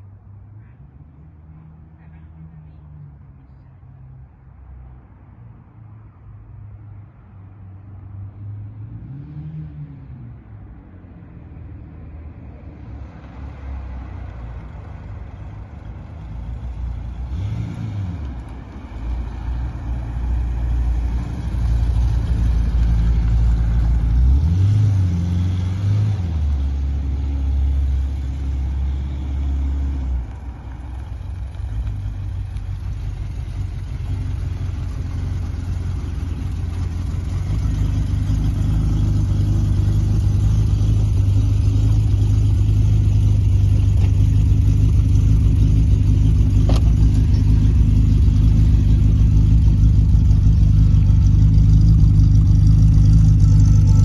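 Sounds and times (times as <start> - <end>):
car engine revving and idling: 13.0 - 54.0.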